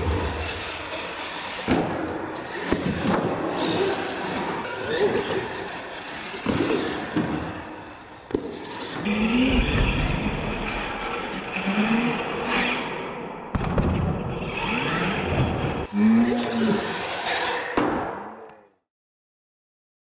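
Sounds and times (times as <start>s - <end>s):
toy truck motor revving: 0.0s - 9.5s, 15.9s - 17.8s.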